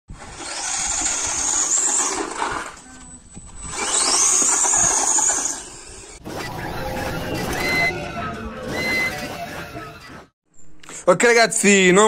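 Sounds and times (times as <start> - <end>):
electric motor whining: 0.2 - 9.9.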